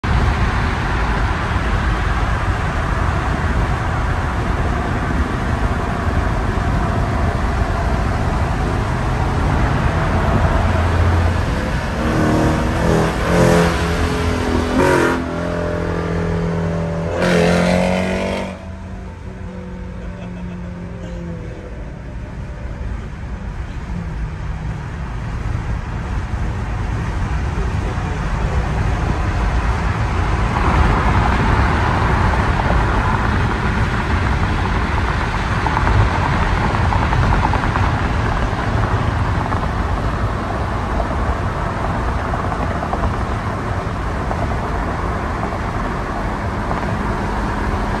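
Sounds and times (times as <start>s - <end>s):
car road and wind noise: 0.0s - 48.0s.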